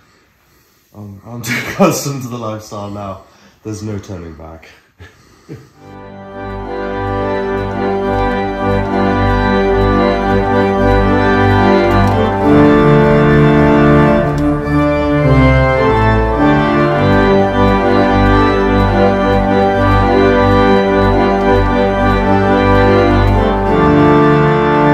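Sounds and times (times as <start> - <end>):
sustained organ chords: 5.8 - 24.9
deep bass: 6.4 - 24.9.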